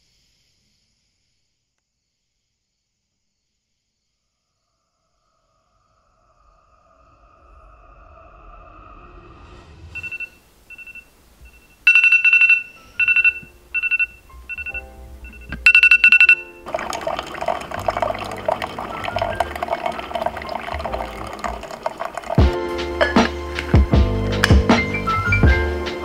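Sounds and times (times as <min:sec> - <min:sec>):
phone alarm beeps: 0:10.0 - 0:16.8
coffee maker brewing: 0:12.5 - 0:23.9
coffee streaming into tumbler: 0:16.0 - 0:23.8.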